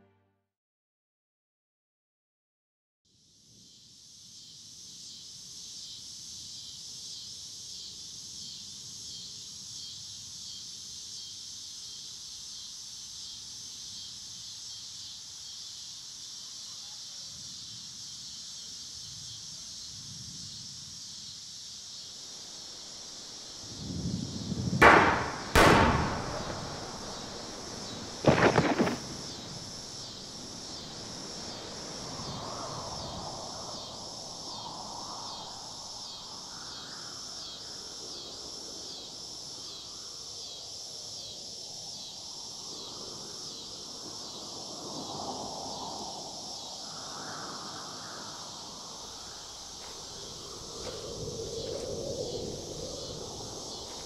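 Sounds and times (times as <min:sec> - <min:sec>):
insects chirring: 0:03.1 - 0:54.0
loud sharp bangs: 0:24.8 - 0:29.8.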